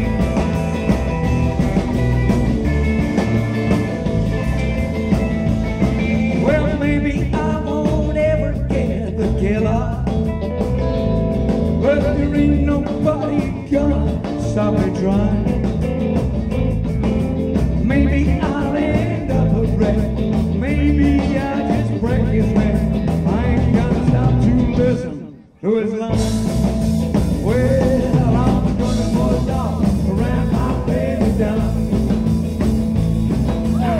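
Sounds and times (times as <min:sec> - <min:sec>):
driving drum beat: 0:00.0 - 0:25.2, 0:26.1 - 0:33.9
electric guitars: 0:00.0 - 0:33.9
man singing lead: 0:05.9 - 0:10.4, 0:11.7 - 0:16.2, 0:17.7 - 0:32.6, 0:33.6 - 0:33.9.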